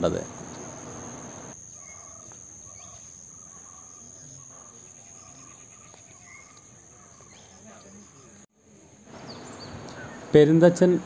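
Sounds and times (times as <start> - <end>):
high-pitched insect trill: 0.0 - 8.4.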